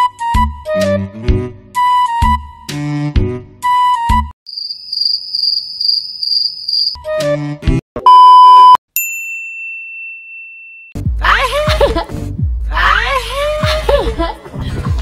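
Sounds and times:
cricket chirping sound effect: 4.5s - 7.0s
loud electronic beep: 8.1s - 8.8s.

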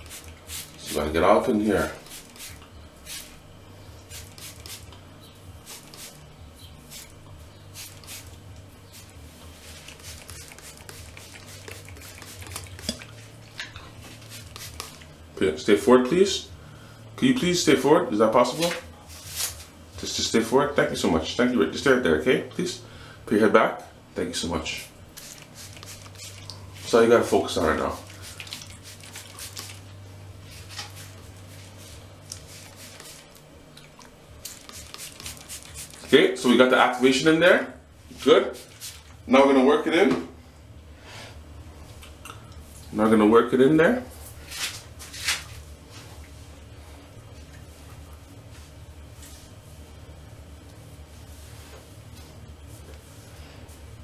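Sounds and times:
low steady hum: 0.0s - 54.0s
hair rustling and crackling: 7.8s - 15.1s, 30.5s - 36.4s
rustling of hair: 8.9s - 13.4s, 47.7s - 54.0s.

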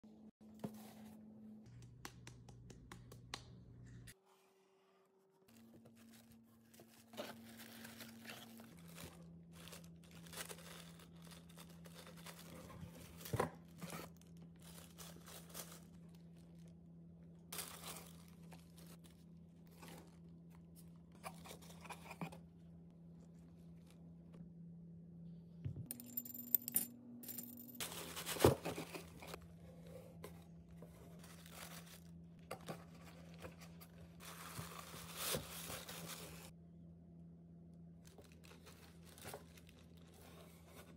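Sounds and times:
paper and cardboard rustling: 5.5s - 16.6s, 27.8s - 36.5s, 38.2s - 40.9s.

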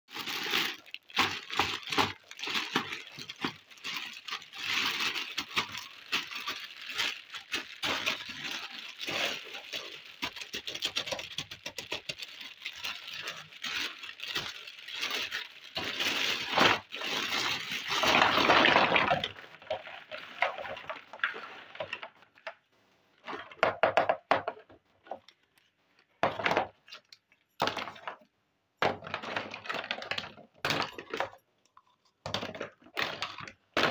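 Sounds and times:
plastic bag crinkling: 0.1s - 22.6s
plastic toys knocking together: 9.8s - 15.1s, 23.6s - 24.8s, 26.2s - 26.8s, 28.8s - 31.4s, 32.2s - 33.9s.

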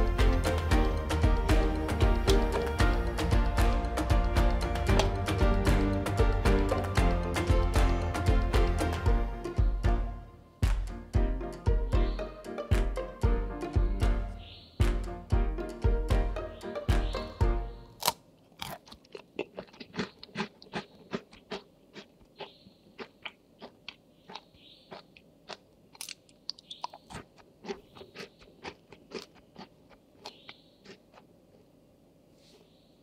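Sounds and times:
background music: 0.0s - 18.2s
crunchy cookies being chewed: 18.0s - 31.7s.

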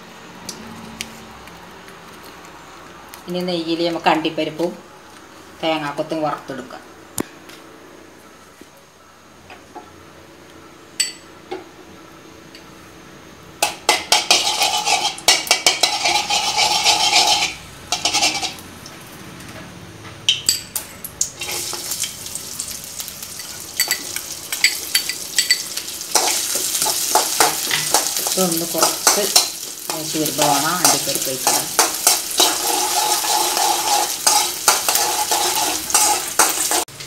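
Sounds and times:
metal spoon scraping a pan: 13.6s - 18.6s, 23.3s - 36.9s
ghee sizzling in a pan: 13.6s - 18.7s, 21.2s - 37.0s.

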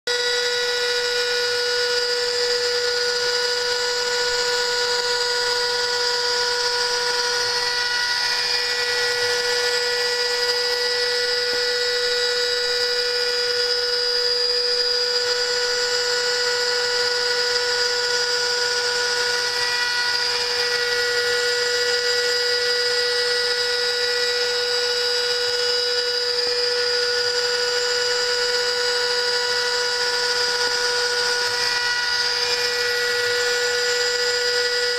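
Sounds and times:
router spindle whine: 0.1s - 34.9s
cutter hissing on metal: 0.6s - 34.9s.

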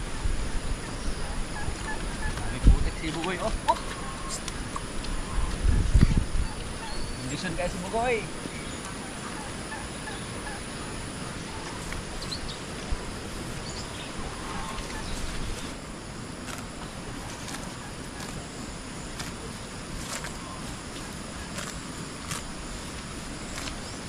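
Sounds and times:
outdoor background noise: 0.0s - 24.0s
faint bird chirps: 0.6s - 7.8s.

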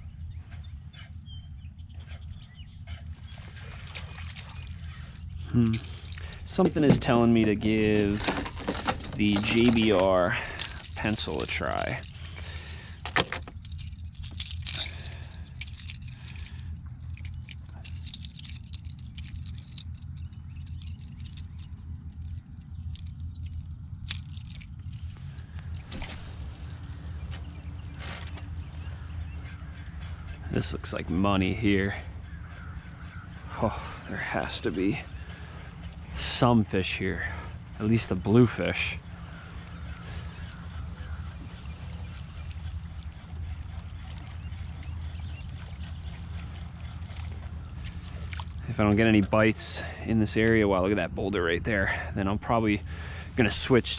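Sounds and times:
low rumble: 0.0s - 50.1s
water lapping against kayak hull: 2.0s - 13.4s, 32.0s - 36.6s, 39.0s - 49.4s.

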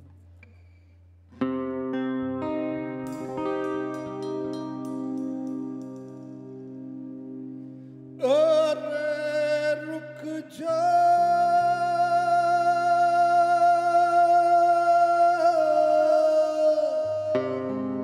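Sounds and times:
live band music: 3.0s - 6.6s
person singing a long high note: 8.2s - 18.0s.

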